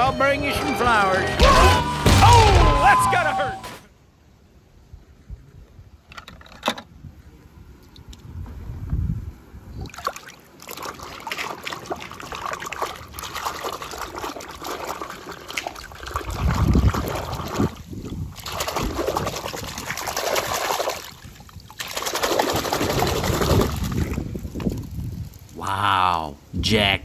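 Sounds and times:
water splashing and trickling: 0:09.7 - 0:25.7
hand sloshing water in a tub: 0:09.8 - 0:24.2.

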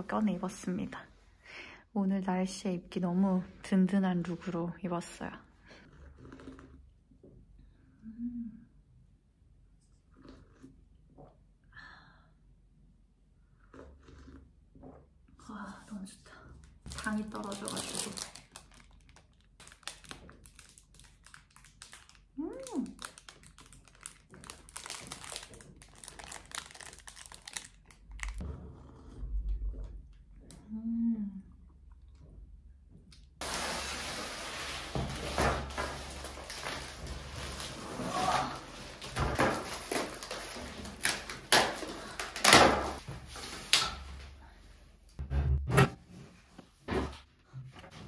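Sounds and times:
crinkling and rustling: 0:16.6 - 0:28.5, 0:32.1 - 0:43.8.

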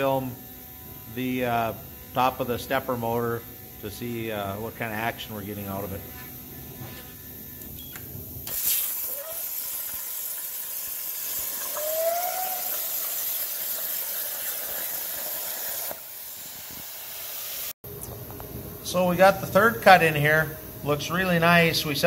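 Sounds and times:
plasma cutter hissing: 0:08.4 - 0:17.8.

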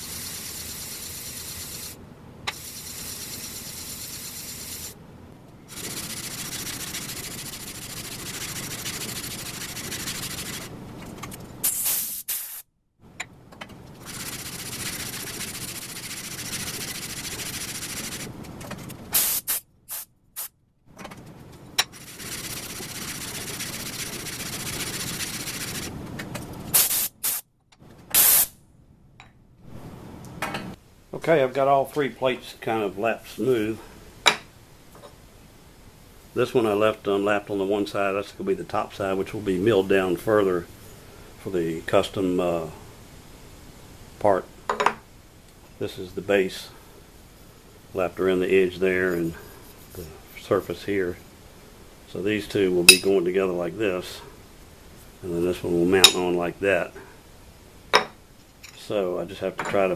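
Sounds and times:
metal plate rasping on sandpaper: 0:05.7 - 0:10.7, 0:14.0 - 0:18.3, 0:21.9 - 0:25.9.

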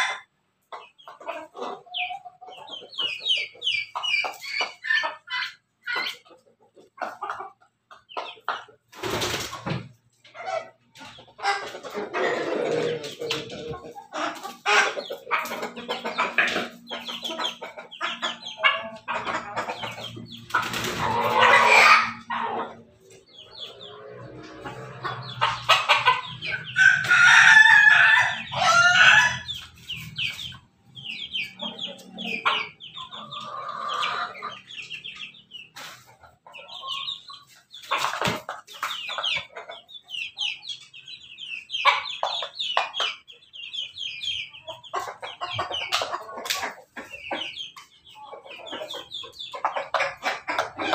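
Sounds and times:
roosters crowing: 0:00.0 - 0:00.3, 0:11.4 - 0:30.2, 0:31.0 - 0:34.8
chickens clucking: 0:00.0 - 0:50.9.

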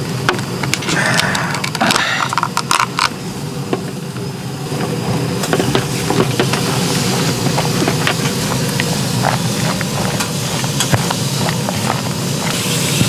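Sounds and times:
steady low rumble: 0:00.0 - 0:13.0
chopsticks scraping and tapping: 0:07.8 - 0:12.6.

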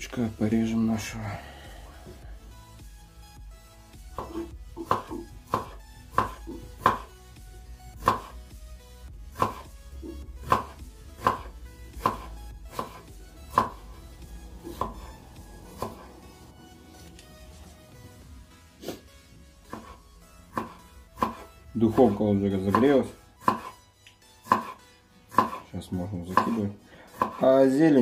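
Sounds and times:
knife knocking on cutting board: 0:04.2 - 0:07.1.

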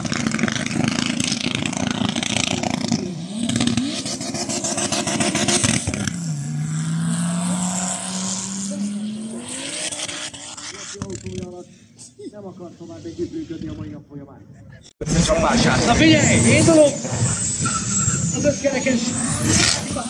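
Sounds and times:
race car engine revving: 0:00.0 - 0:11.7, 0:15.0 - 0:20.0.

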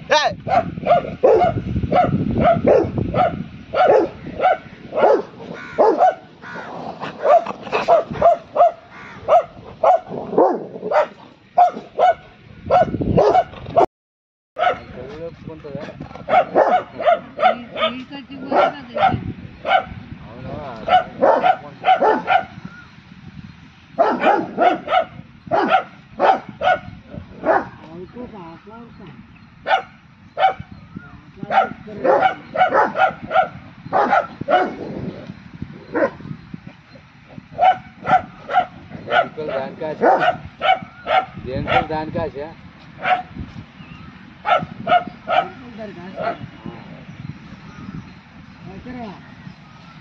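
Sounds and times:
dog barking rapidly: 0:00.4 - 0:13.9, 0:14.6 - 0:14.9, 0:16.2 - 0:20.0, 0:20.8 - 0:22.6, 0:24.0 - 0:27.8, 0:29.6 - 0:30.7, 0:31.4 - 0:35.0, 0:35.9 - 0:36.2, 0:37.4 - 0:42.0, 0:43.0 - 0:43.4, 0:44.4 - 0:46.5.

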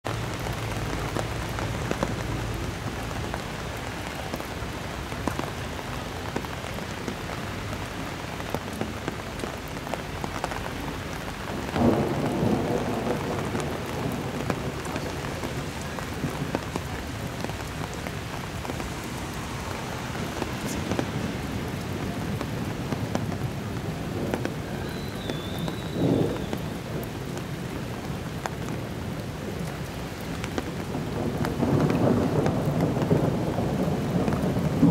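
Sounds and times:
steady rain: 0:00.0 - 0:34.9
thunder claps: 0:11.2 - 0:27.8, 0:30.4 - 0:34.9.

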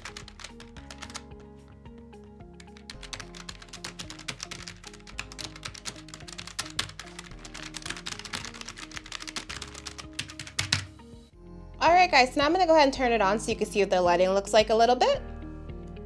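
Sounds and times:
fast keyboard typing: 0:00.0 - 0:01.5, 0:02.6 - 0:10.9
background music with held notes: 0:00.0 - 0:16.0.

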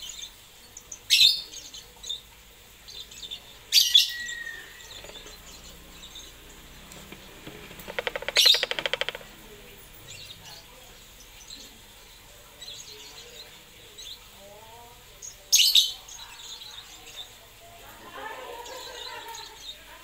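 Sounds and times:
lovebird chirping: 0:00.0 - 0:09.3
bird rattling chatter: 0:04.8 - 0:05.6, 0:06.9 - 0:09.4.

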